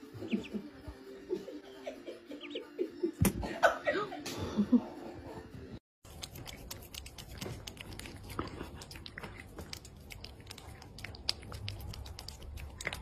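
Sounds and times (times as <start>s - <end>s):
cat licking and chewing: 6.0s - 13.0s.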